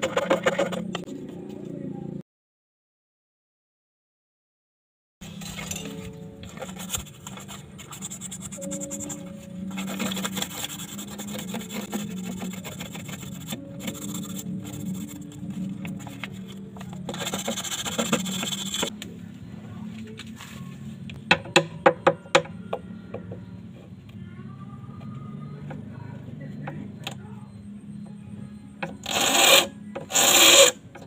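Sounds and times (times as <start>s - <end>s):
file rubbing on steel wire: 6.5s - 18.9s.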